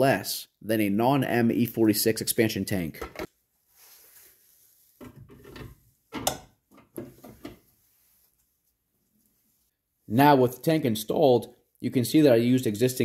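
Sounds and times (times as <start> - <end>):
knocks and rubs of handling: 3.1 - 9.7.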